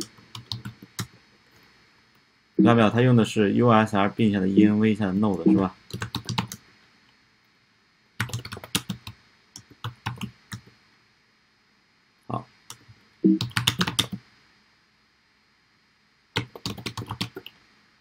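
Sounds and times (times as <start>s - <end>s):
keyboard typing: 0.0s - 1.2s, 5.5s - 6.6s, 8.2s - 10.7s, 12.7s - 14.2s, 16.4s - 17.6s.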